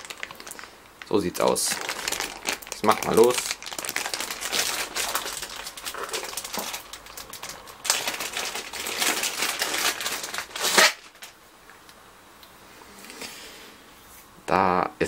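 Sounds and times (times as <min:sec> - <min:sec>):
plastic wrapping crinkling: 0:00.0 - 0:11.8.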